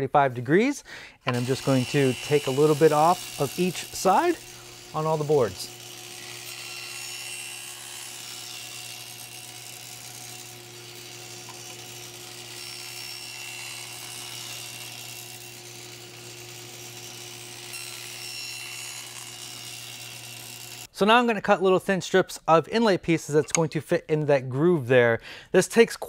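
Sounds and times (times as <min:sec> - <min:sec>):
table saw cutting wood: 0:01.3 - 0:20.9.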